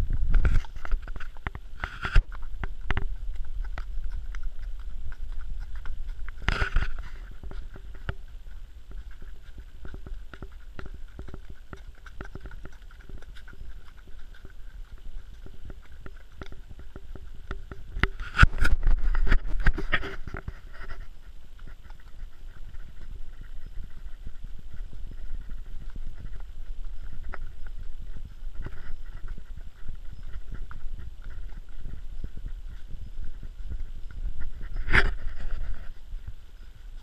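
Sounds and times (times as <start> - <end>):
low rumble: 0.0 - 19.9
horse hoofbeats on dirt trail: 0.0 - 37.0.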